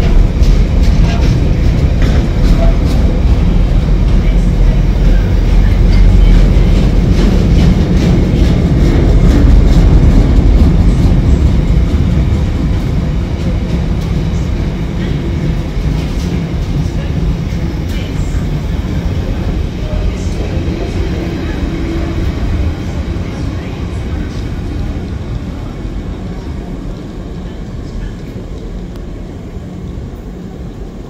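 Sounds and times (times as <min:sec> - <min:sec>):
train wheels rumbling on rail: 0:00.0 - 0:31.0.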